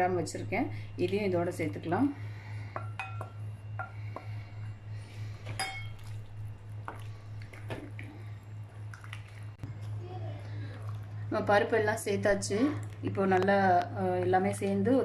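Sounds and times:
steady low hum: 0:00.0 - 0:15.0
steel bowl clinking against clay pot: 0:02.7 - 0:04.3, 0:05.5 - 0:06.2.

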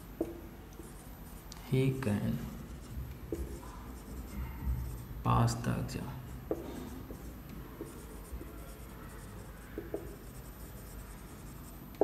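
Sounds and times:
marker writing on whiteboard: 0:00.0 - 0:12.0
marker tip tapping: 0:06.4 - 0:08.5, 0:09.8 - 0:10.4.

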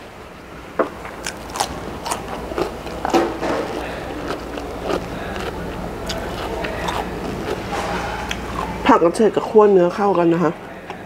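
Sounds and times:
crunchy chewing: 0:01.1 - 0:09.3.

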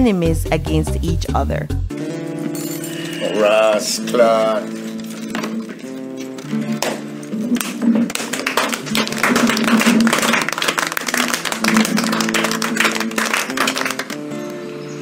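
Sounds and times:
acoustic guitar music: 0:00.0 - 0:15.0
people clapping: 0:06.7 - 0:14.6.

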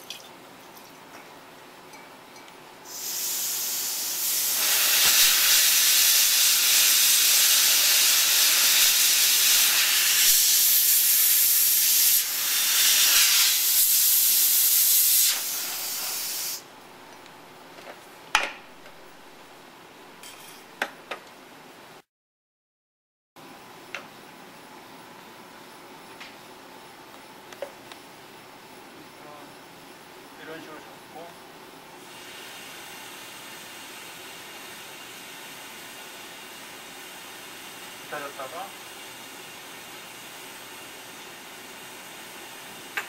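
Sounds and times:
gas jet hissing: 0:02.9 - 0:16.6, 0:32.0 - 0:41.1.

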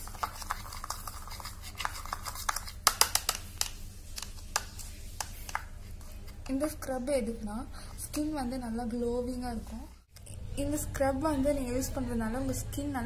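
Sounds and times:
spoon scraping a bowl: 0:00.0 - 0:02.8.

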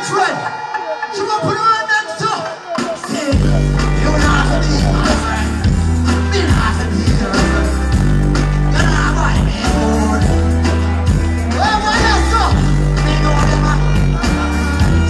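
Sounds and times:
person singing: 0:03.0 - 0:15.0
heavy bass line: 0:03.3 - 0:15.0.

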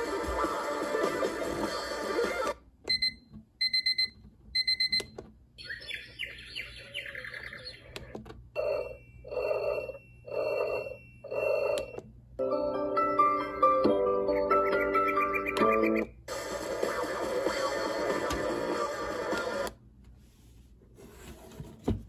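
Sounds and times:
birdsong chirping: 0:05.6 - 0:08.8, 0:14.2 - 0:16.2
alarm clock music: 0:08.6 - 0:16.1.

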